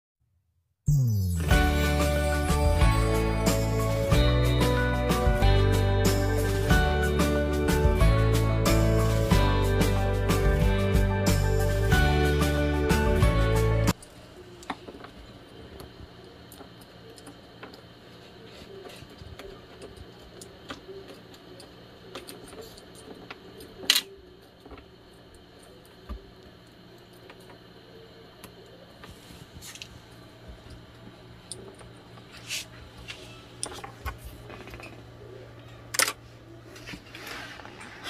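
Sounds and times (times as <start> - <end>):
paper rustling: 36.7 - 38.0.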